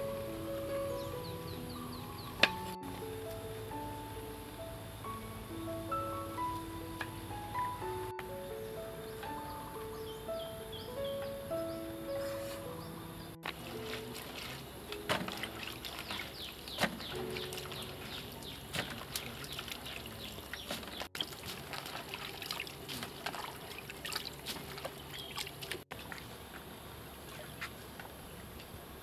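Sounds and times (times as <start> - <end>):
water splashing and trickling: 12.0 - 28.9.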